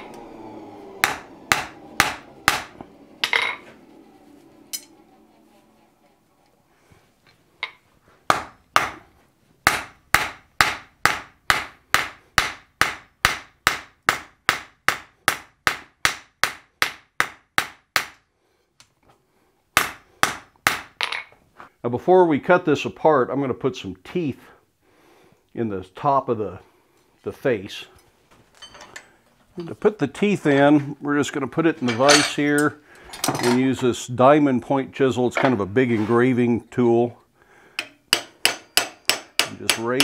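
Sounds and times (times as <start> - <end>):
hammer striking steel on anvil: 1.0 - 3.6, 37.8 - 40.0.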